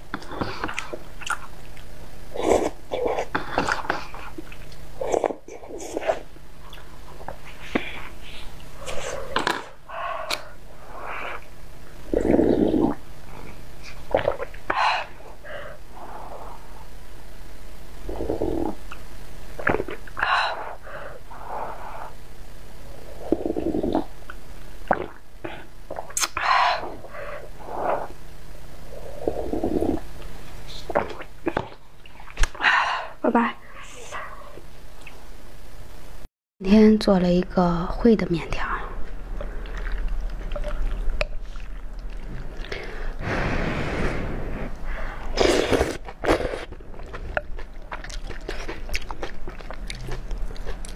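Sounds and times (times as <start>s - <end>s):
person slurping and swallowing: 8.8s - 10.4s, 13.9s - 14.7s, 19.6s - 20.2s, 24.8s - 26.4s, 39.4s - 43.3s, 44.0s - 50.9s
breath blowing on food: 42.7s - 46.7s
loud hissing slurps: 42.8s - 46.7s.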